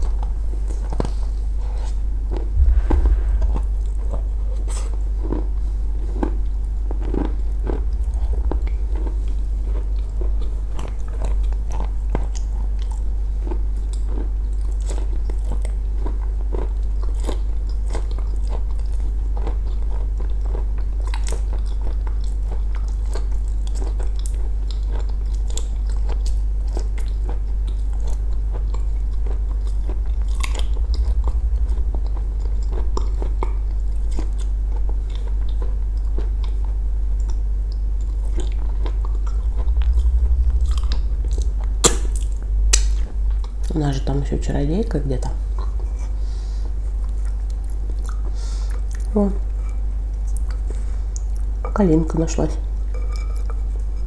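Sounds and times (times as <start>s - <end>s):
low hum: 2.3s - 4.6s, 6.4s - 12.2s, 28.8s - 47.8s
person chewing: 4.7s - 43.7s, 47.0s - 51.5s.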